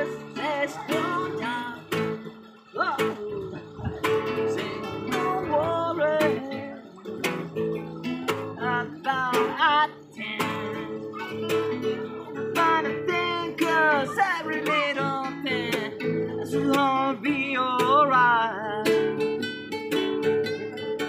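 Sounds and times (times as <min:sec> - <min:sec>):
man singing: 0:00.0 - 0:19.4
acoustic guitars strummed and picked: 0:00.0 - 0:21.0.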